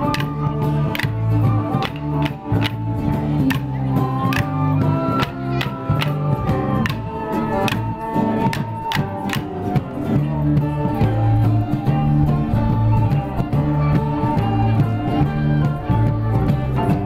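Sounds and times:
wooden sticks clacking: 0:00.0 - 0:09.8
folk band playing dance tune: 0:00.0 - 0:17.0.

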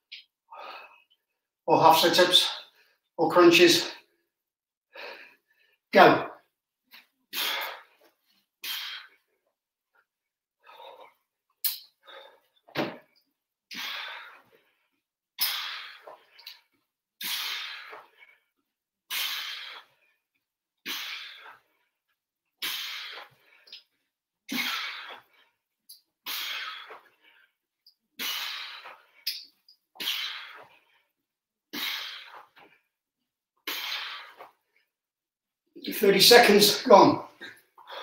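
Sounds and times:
man breathing out hard: 0:13.7 - 0:16.4.

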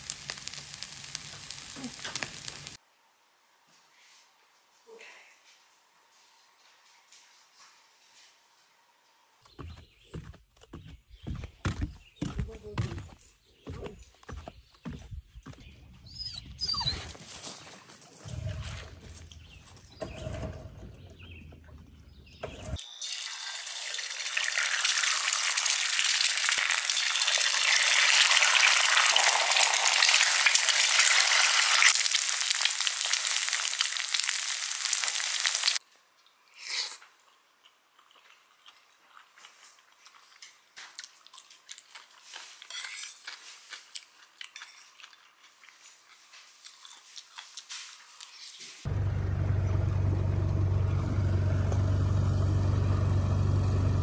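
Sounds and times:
eggs sizzling in oil: 0:00.0 - 0:02.8, 0:22.8 - 0:35.8.

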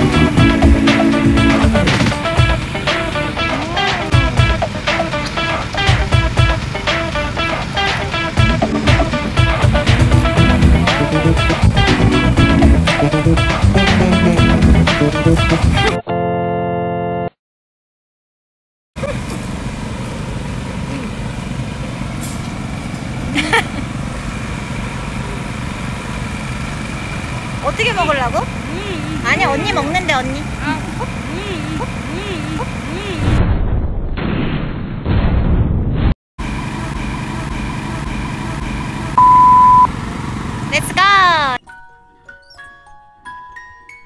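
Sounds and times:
organ-like electronic tone: 0:00.0 - 0:02.6, 0:08.4 - 0:17.4, 0:36.7 - 0:39.9
market ambience: 0:00.0 - 0:05.9, 0:19.0 - 0:33.4
steady outdoor hum: 0:00.0 - 0:15.8, 0:19.0 - 0:33.3, 0:36.4 - 0:44.0
guitar music: 0:00.0 - 0:16.0
loud low rumble: 0:08.4 - 0:14.9.

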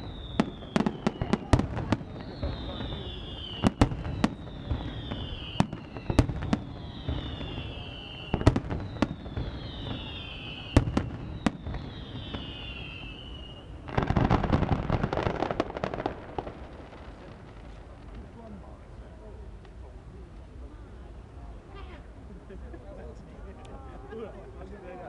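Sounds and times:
falling firework whistles: 0:00.0 - 0:16.9
firework bangs: 0:00.0 - 0:18.4
firework crackle: 0:00.0 - 0:20.6.

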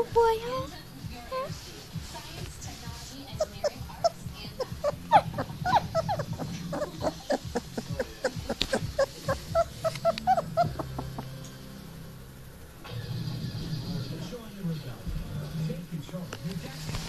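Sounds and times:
puppy whimpering: 0:03.2 - 0:11.4.

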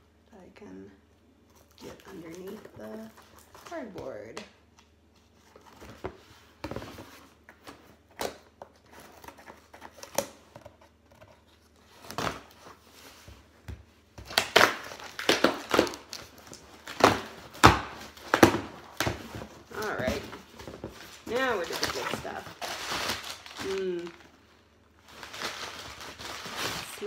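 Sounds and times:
cardboard crinkling: 0:01.4 - 0:04.2, 0:05.1 - 0:27.0
tape tearing: 0:14.2 - 0:24.3, 0:25.1 - 0:27.0.

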